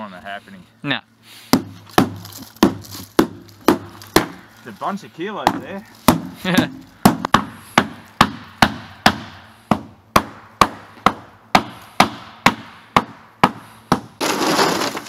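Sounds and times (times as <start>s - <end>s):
rubber mallet striking metal hull: 5.5s - 14.1s.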